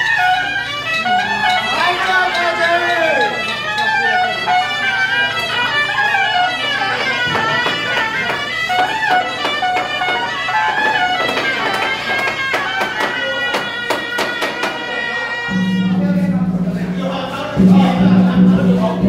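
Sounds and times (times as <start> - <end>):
marching band wind instruments: 0.0 - 17.2
hand cymbal strikes: 0.0 - 19.0
drum strikes: 6.8 - 14.9, 15.5 - 19.0.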